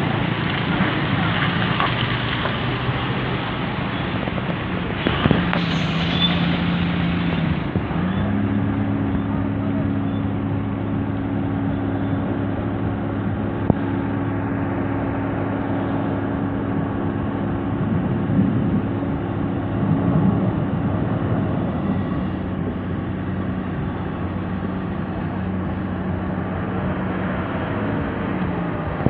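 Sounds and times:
heavy truck engines running: 0:00.0 - 0:29.0
short hiss: 0:05.0 - 0:06.4.

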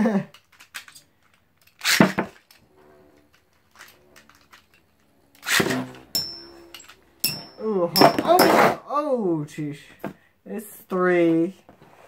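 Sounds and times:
spinning top humming: 0:02.6 - 0:07.8
spinning top launch: 0:05.4 - 0:07.0.

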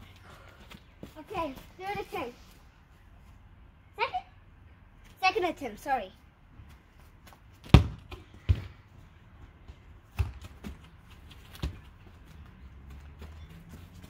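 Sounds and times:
ball bouncing thuds: 0:07.3 - 0:12.4
soccer ball kicked hard: 0:07.6 - 0:08.8, 0:09.7 - 0:10.9, 0:11.5 - 0:11.9.

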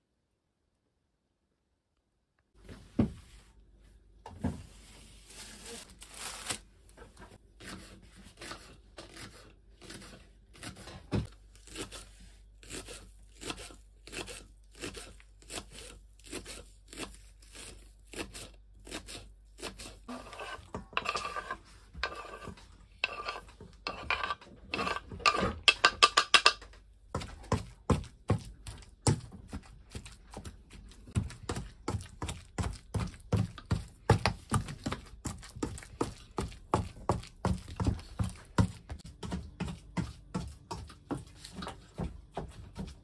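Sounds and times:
knife chopping on wooden board: 0:27.2 - 0:41.3.

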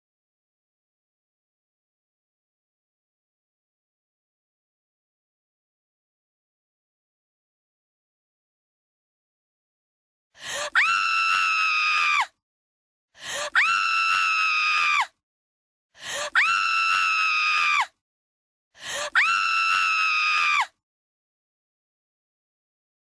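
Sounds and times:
high-pitched scream: 0:19.1 - 0:20.7.

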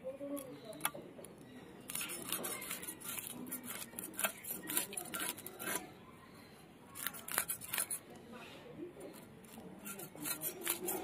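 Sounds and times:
fish scales scraped on blade: 0:01.9 - 0:05.9, 0:07.0 - 0:08.1, 0:09.1 - 0:11.0.

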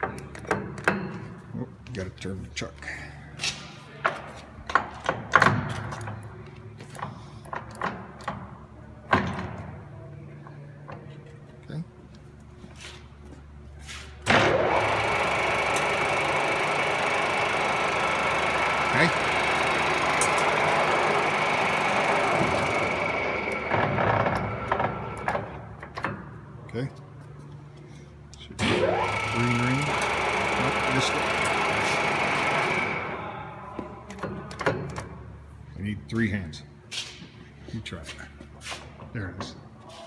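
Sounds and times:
lathe motor whining: 0:14.3 - 0:25.7, 0:28.6 - 0:33.4.

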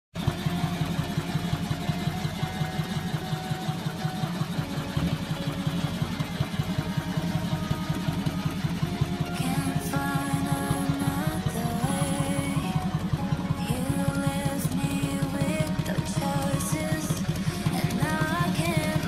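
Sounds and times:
motorcycle engine idling: 0:00.2 - 0:19.0.

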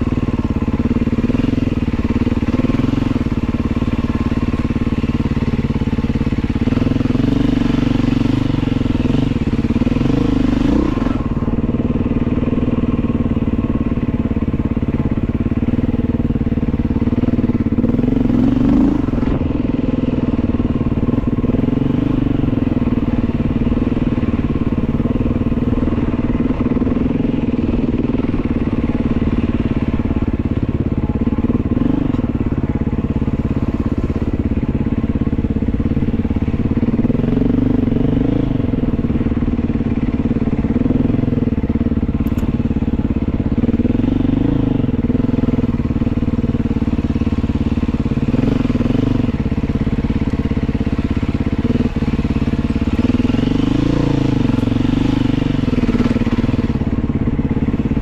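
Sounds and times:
dirt bike engine revving: 0:00.9 - 0:11.5, 0:16.8 - 0:29.9, 0:35.5 - 0:58.0.

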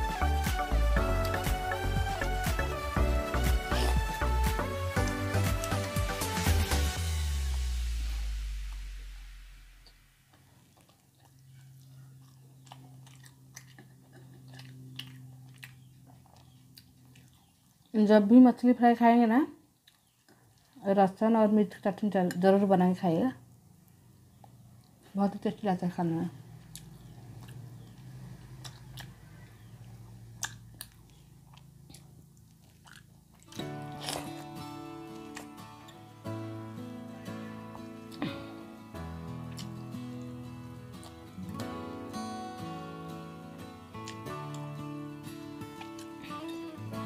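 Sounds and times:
close-up chewing: 0:00.9 - 0:06.6, 0:10.3 - 0:18.0, 0:19.6 - 0:20.8, 0:26.4 - 0:36.0, 0:39.4 - 0:41.3, 0:45.6 - 0:46.5
eating clicks and smacks: 0:01.1 - 0:02.8, 0:10.3 - 0:17.9, 0:19.7 - 0:20.8, 0:26.6 - 0:36.0, 0:39.5 - 0:39.8, 0:44.0 - 0:44.7
low hum: 0:06.5 - 0:10.6
mouth clicks and smacks: 0:26.6 - 0:34.5.

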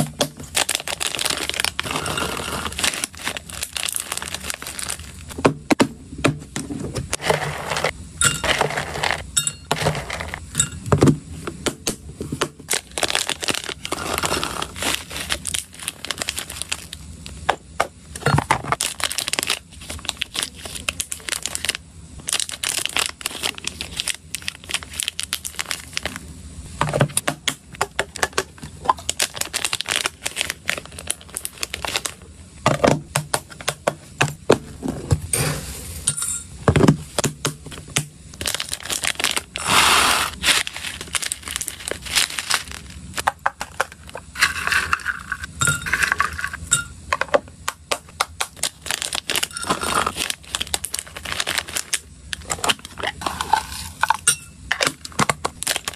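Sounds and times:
plastic packaging crinkling: 0:00.0 - 0:05.4, 0:12.6 - 0:17.4, 0:18.6 - 0:26.2, 0:28.0 - 0:32.3, 0:37.8 - 0:46.7, 0:47.7 - 0:55.9.

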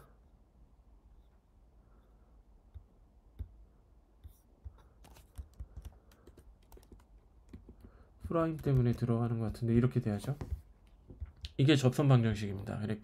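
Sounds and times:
keyboard typing: 0:04.6 - 0:09.2.

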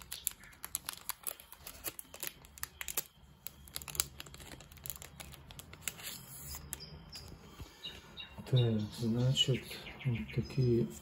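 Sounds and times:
plastic sleeve crinkling: 0:00.0 - 0:06.9.

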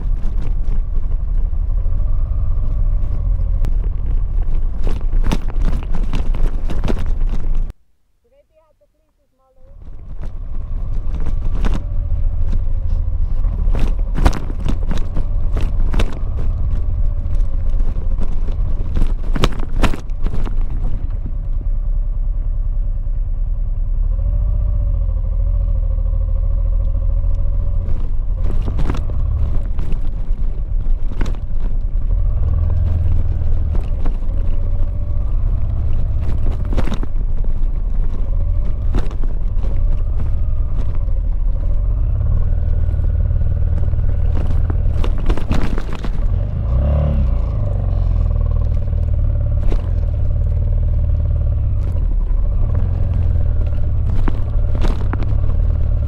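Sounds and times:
motorcycle engine running: 0:00.0 - 0:56.0
stones knocking and clattering: 0:03.1 - 0:07.7, 0:09.8 - 0:21.4, 0:27.6 - 0:56.0.

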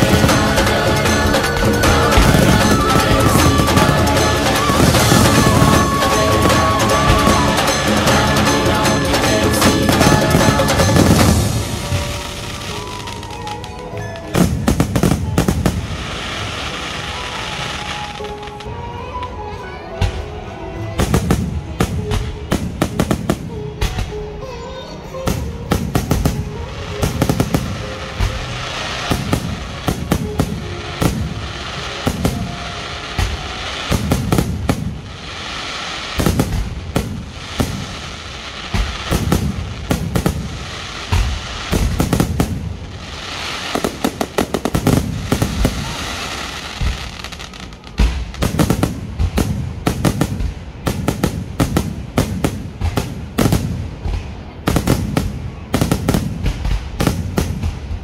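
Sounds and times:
crackling sparks: 0:00.0 - 0:18.8
fireworks bangs and thumps: 0:00.0 - 0:18.8, 0:20.9 - 0:24.2, 0:25.2 - 0:58.0.

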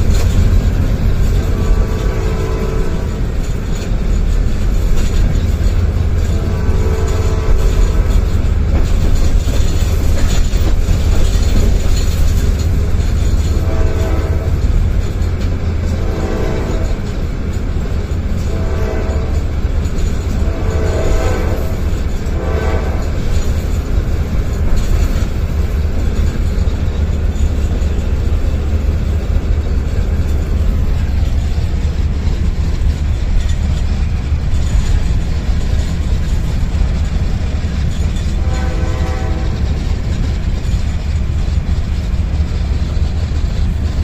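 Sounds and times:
locomotive engine and wheels rumble: 0:00.0 - 0:44.0
locomotive horn blasts: 0:00.9 - 0:03.4, 0:05.8 - 0:08.3, 0:13.4 - 0:15.0, 0:15.9 - 0:17.1, 0:18.3 - 0:23.4, 0:38.3 - 0:40.1.

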